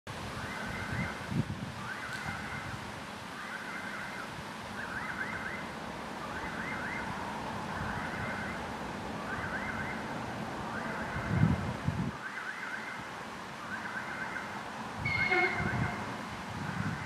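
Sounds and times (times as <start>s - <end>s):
warbling warning tone: 15.0s - 16.2s
train rumble: 15.0s - 17.0s.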